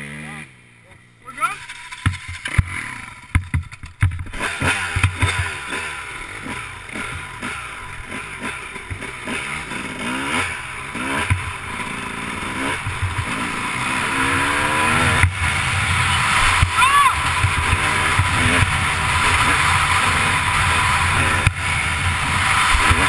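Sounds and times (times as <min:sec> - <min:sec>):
motorcycle engine revving: 0:00.0 - 0:23.0
motorcycle knocks: 0:02.0 - 0:05.6.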